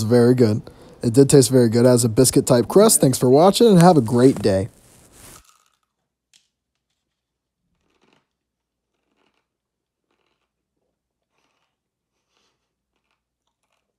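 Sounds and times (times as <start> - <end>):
faint chewing with soft crunches: 2.4 - 13.9.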